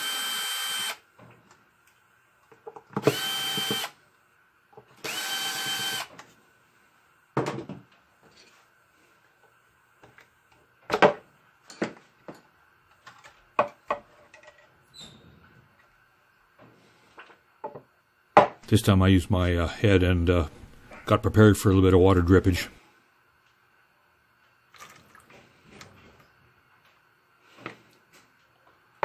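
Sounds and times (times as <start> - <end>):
cordless drill spinning: 0.0 - 1.0, 3.0 - 4.0, 5.0 - 6.1.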